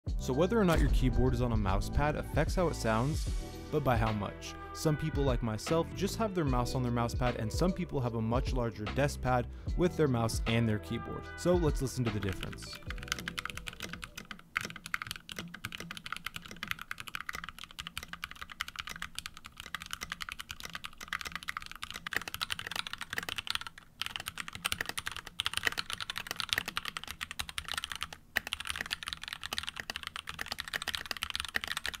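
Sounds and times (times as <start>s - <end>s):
typing on mechanical keyboard: 12.1s - 32.0s.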